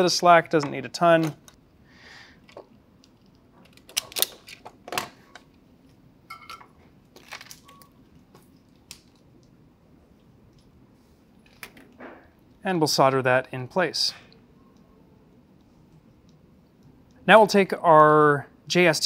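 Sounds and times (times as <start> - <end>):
hand tools clicking and snipping wire: 3.1 - 5.4.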